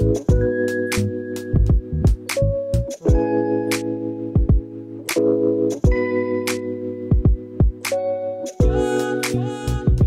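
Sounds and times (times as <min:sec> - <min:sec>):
held chords: 0:00.0 - 0:10.0
steady drum beat: 0:01.6 - 0:02.3, 0:04.4 - 0:04.6, 0:07.1 - 0:07.8, 0:08.6 - 0:10.0.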